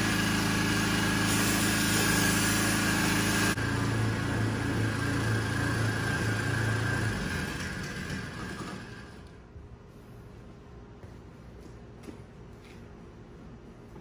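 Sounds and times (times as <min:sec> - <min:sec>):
pressure washer motor hum: 0:00.0 - 0:09.4
water spraying hiss: 0:00.8 - 0:03.6.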